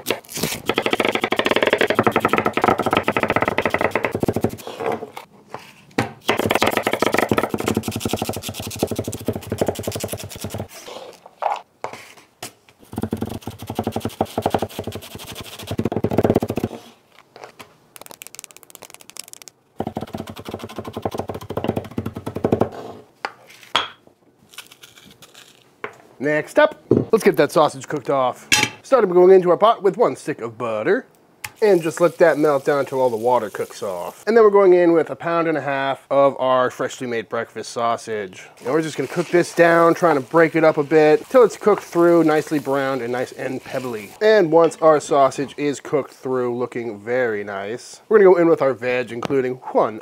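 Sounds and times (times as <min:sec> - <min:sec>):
knife chopping on wooden board: 0:00.7 - 0:04.6, 0:12.9 - 0:15.0.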